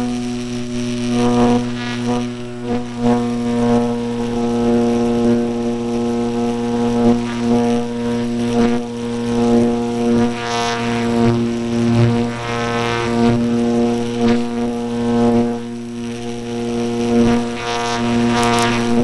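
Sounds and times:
electric motor and propeller droning: 0:00.0 - 0:19.0.

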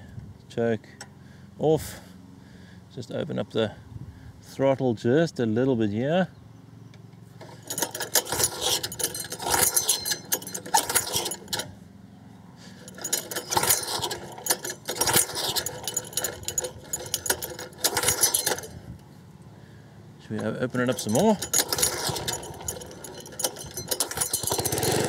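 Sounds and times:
lawnmower engine cranking: 0:07.4 - 0:11.9, 0:12.6 - 0:19.6, 0:20.2 - 0:25.0.

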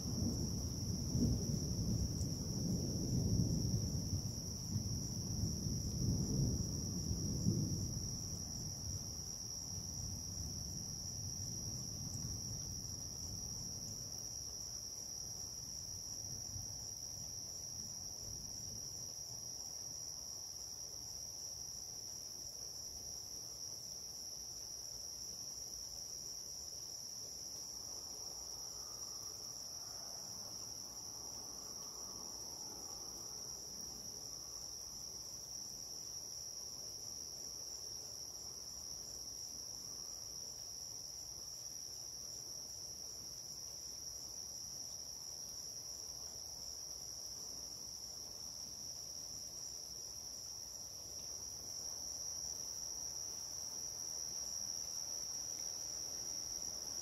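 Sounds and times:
thunder rumbling: 0:00.0 - 0:08.9
crickets trilling: 0:00.0 - 0:57.0.

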